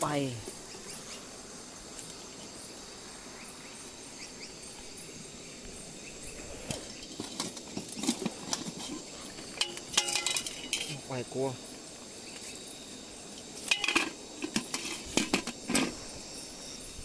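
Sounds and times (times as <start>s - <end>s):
night insects trilling: 0.0s - 17.0s
stones and basin knocking: 7.0s - 10.9s.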